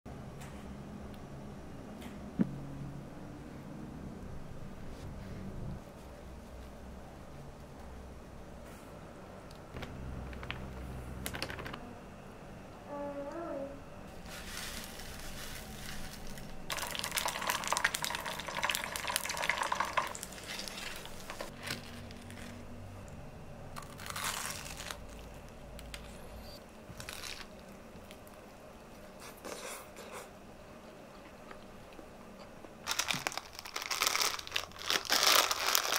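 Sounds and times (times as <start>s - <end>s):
hot oil sizzling and crackling: 16.7s - 21.5s.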